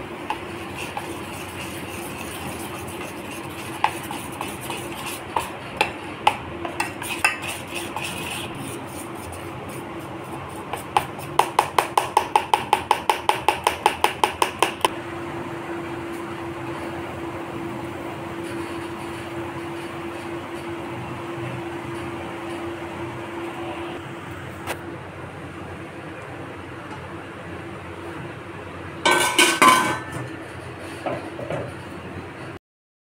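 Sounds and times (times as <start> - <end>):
spoon clinking in steel bowl: 29.1 - 30.2.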